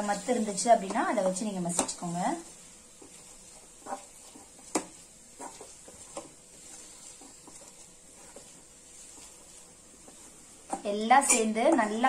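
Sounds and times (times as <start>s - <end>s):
tumbler mashing vegetables in a pan: 0.0s - 12.0s.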